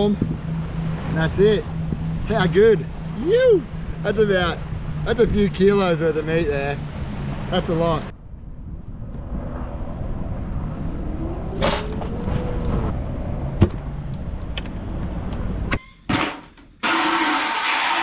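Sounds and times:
traffic rumble: 0.0s - 15.8s
wind: 0.0s - 18.0s
faint hum: 0.2s - 11.6s
hose spraying into plastic bucket: 16.8s - 18.0s.

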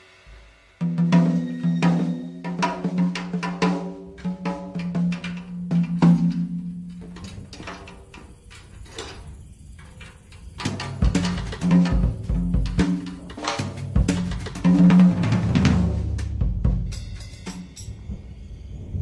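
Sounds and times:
sharp percussion hits: 0.0s - 6.7s, 10.6s - 18.3s
deep drum hits: 13.9s - 17.1s.

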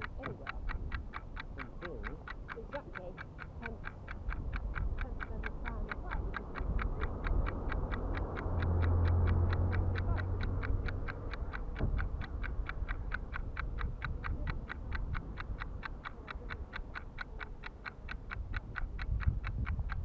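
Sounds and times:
steady ticking: 0.0s - 20.0s.

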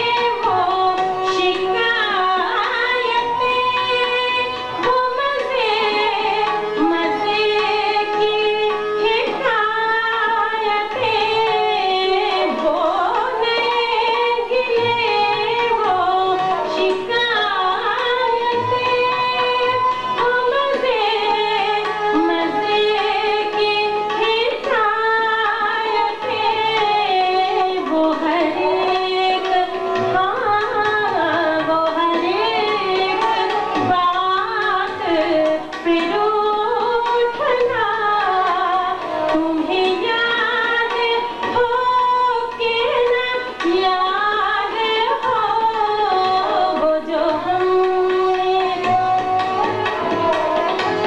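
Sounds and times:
harmonium: 0.0s - 51.0s
woman singing: 0.0s - 51.0s.

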